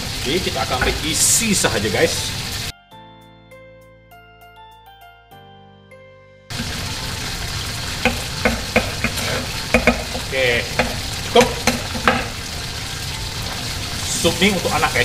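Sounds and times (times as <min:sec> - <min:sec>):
meat frying in hot oil: 0:00.0 - 0:02.7, 0:06.5 - 0:15.0
knife chopping on wooden board: 0:08.0 - 0:12.4.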